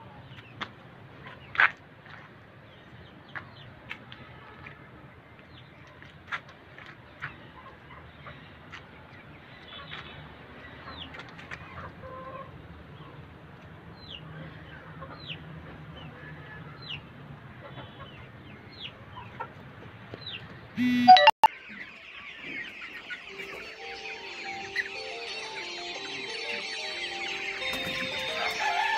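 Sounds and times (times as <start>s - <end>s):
chickens clucking: 5.8s - 20.5s, 21.6s - 28.9s
high falling peeps: 20.8s - 21.5s.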